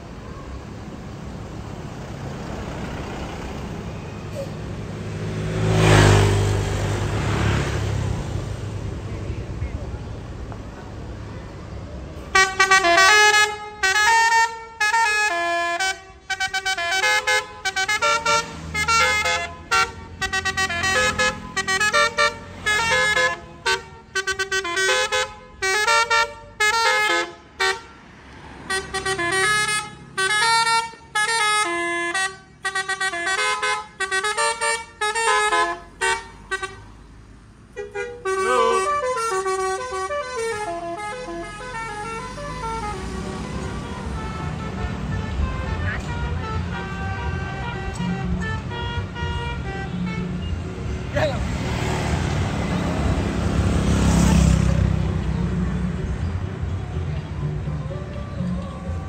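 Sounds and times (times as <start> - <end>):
bus horn playing a tune: 12.2 - 37.0, 37.7 - 50.9.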